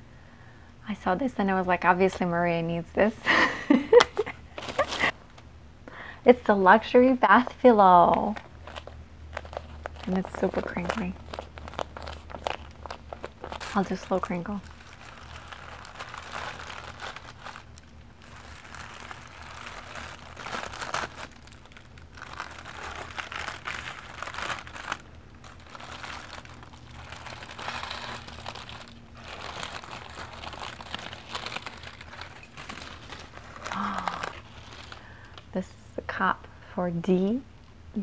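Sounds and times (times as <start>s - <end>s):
tissue paper crinkling: 4.5s - 5.2s, 8.1s - 35.2s.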